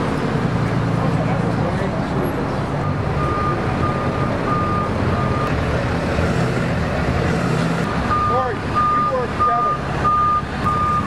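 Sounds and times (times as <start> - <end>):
truck engine running: 0.0 - 11.0
reversing alarm beeping: 2.8 - 5.6, 7.4 - 11.0.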